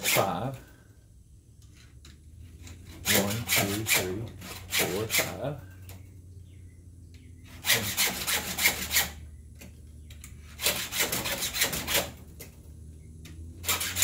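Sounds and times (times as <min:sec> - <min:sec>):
file rasping on saw chain: 0:02.7 - 0:05.4, 0:07.5 - 0:09.2, 0:10.5 - 0:12.2, 0:13.6 - 0:14.0.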